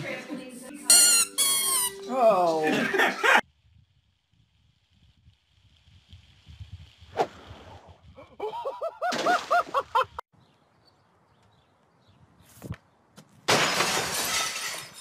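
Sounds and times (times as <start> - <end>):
glass shattering: 13.5 - 15.0.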